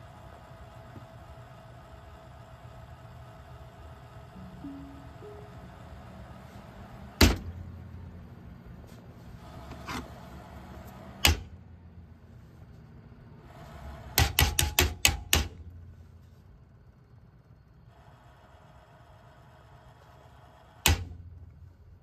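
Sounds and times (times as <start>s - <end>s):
computer case fan humming: 0.0s - 22.0s
loud sharp clacks: 14.1s - 15.6s.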